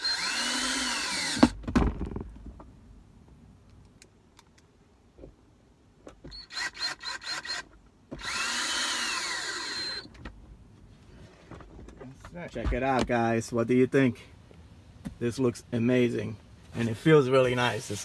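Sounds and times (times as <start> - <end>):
cordless drill driving screws: 0.0 - 1.6, 6.3 - 10.1.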